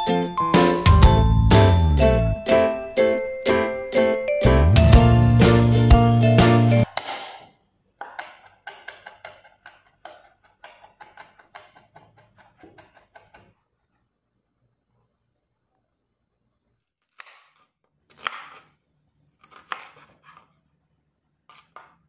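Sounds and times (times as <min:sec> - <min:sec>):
music: 0:00.0 - 0:06.9
knife mincing on wooden board: 0:08.0 - 0:13.5.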